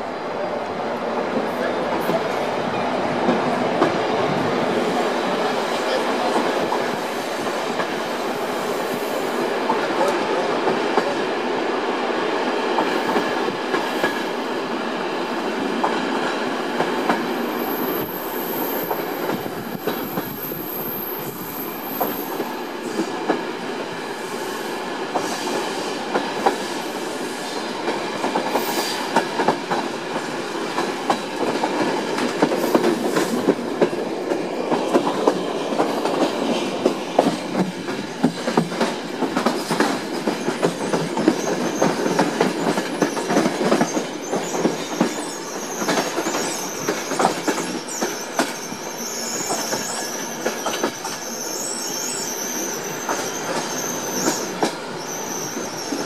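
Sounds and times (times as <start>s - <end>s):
train wheels rumbling on track: 0.0s - 56.0s
thin high squeal: 47.8s - 56.0s.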